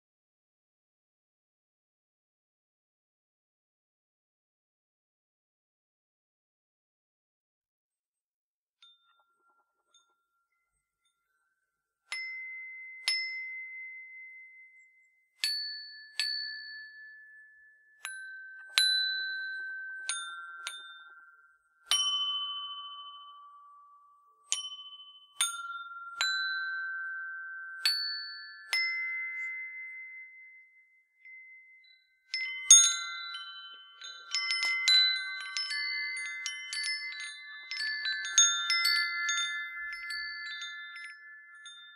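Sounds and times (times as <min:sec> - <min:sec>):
wind chime tubes struck: 0:08.8 - 0:41.9.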